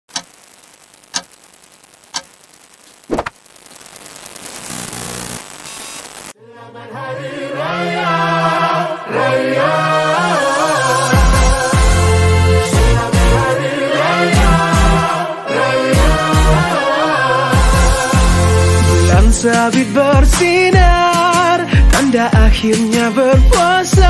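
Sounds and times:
sharp clicks: 0:00.1 - 0:06.3
crackle and hiss: 0:00.1 - 0:06.4.

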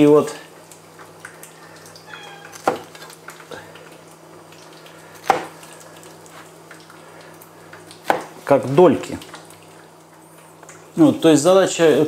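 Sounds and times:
knife cutting pineapple: 0:02.5 - 0:02.9, 0:05.2 - 0:05.6.

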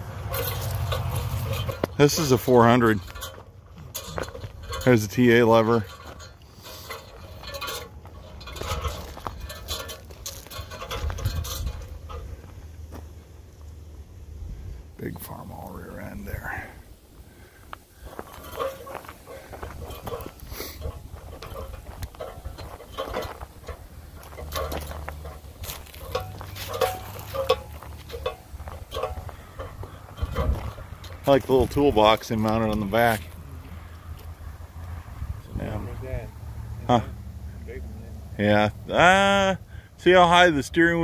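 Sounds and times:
footsteps crunching through dry brush: 0:00.0 - 0:04.7, 0:06.0 - 0:14.2, 0:17.0 - 0:35.0.

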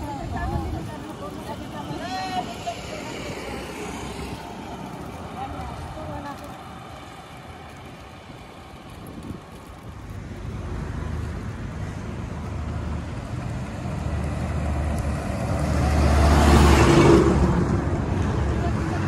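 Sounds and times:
heavy truck passing: 0:09.9 - 0:19.0.

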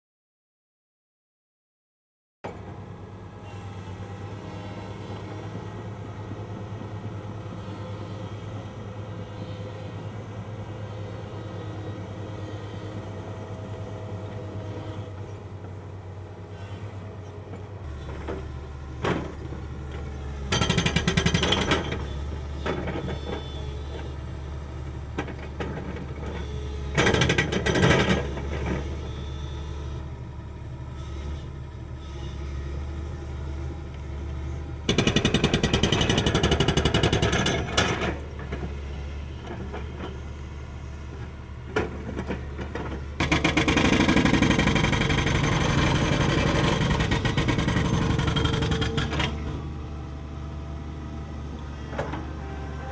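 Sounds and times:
excavator diesel engine running: 0:02.5 - 0:52.9
hydraulic breaker hammering concrete: 0:20.5 - 0:22.0, 0:34.9 - 0:38.2, 0:41.8 - 0:49.5.

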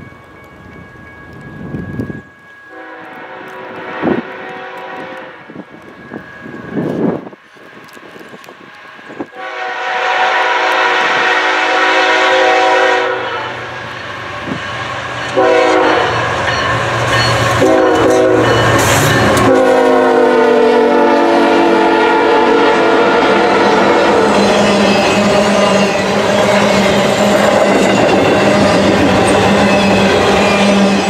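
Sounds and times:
train rumble and clatter: 0:00.0 - 0:31.0
locomotive horn blasts: 0:02.7 - 0:05.5, 0:09.3 - 0:13.7, 0:15.3 - 0:16.4, 0:17.4 - 0:25.8.

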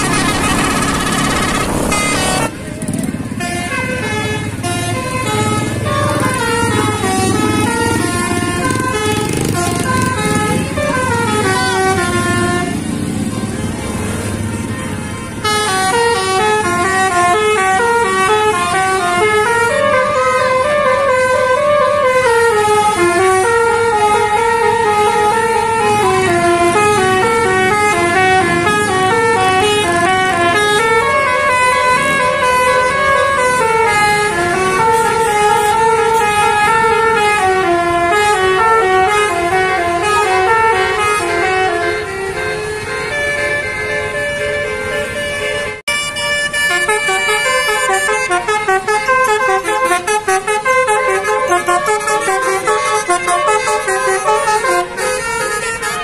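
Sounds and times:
musical air horn melody: 0:00.0 - 0:02.6, 0:15.4 - 0:56.0
bus engine rumble: 0:00.0 - 0:09.2.

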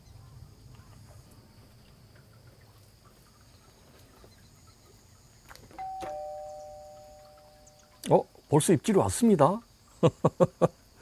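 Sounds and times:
high insect trill: 0:00.0 - 0:11.0
two-note chime: 0:05.8 - 0:08.0.

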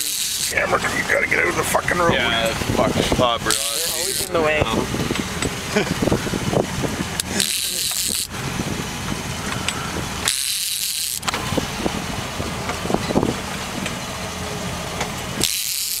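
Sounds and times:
boat engine running: 0:00.0 - 0:16.0.

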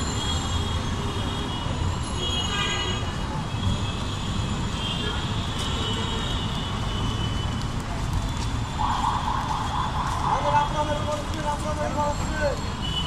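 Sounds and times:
street traffic rumble: 0:00.0 - 0:13.0
people's voices: 0:08.8 - 0:12.7.

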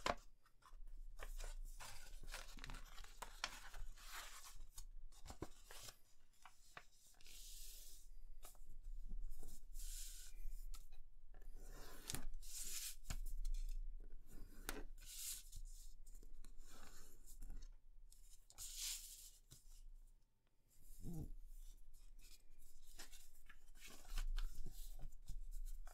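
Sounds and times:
paper rustling: 0:00.0 - 0:07.7, 0:22.2 - 0:25.9.

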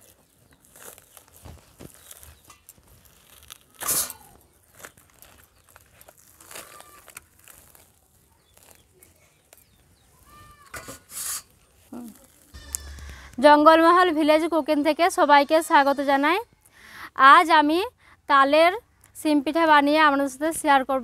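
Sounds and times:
fibrous fruit ripping and rustling: 0:00.0 - 0:13.4.

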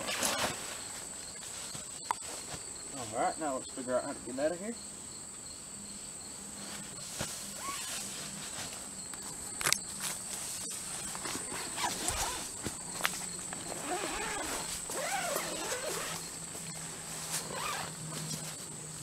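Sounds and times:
high-pitched insect chorus: 0:00.0 - 0:19.0
rustles on leaf litter: 0:06.6 - 0:08.9, 0:09.9 - 0:18.7.

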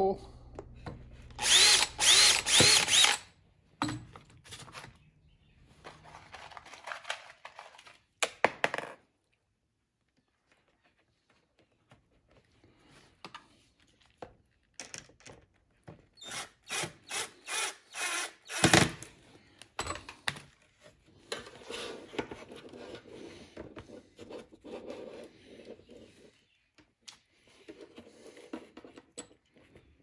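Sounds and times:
cordless drill bursts: 0:01.4 - 0:03.3, 0:16.2 - 0:19.1.

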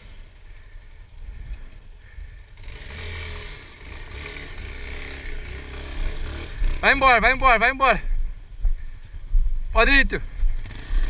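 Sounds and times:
motorcycle engine revving: 0:00.0 - 0:07.8, 0:10.2 - 0:11.0.

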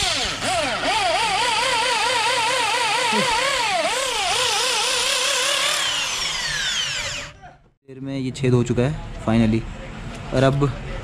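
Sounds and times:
electric drill boring into metal: 0:00.0 - 0:07.3.

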